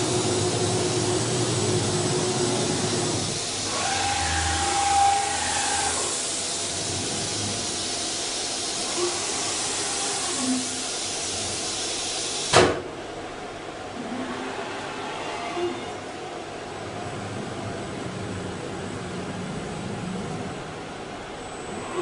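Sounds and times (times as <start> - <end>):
cnc router hissing: 0.6 - 6.5, 8.8 - 10.9.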